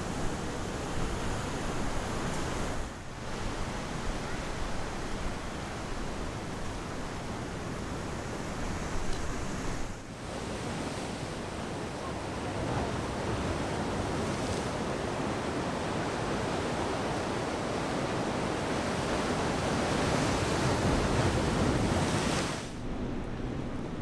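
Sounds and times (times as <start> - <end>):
ocean surf breaking on rocks: 0.0 - 24.0.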